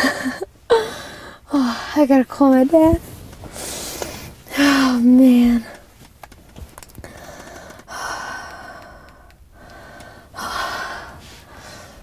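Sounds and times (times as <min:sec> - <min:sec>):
woman breathing hard: 0:00.0 - 0:02.0, 0:07.0 - 0:12.0.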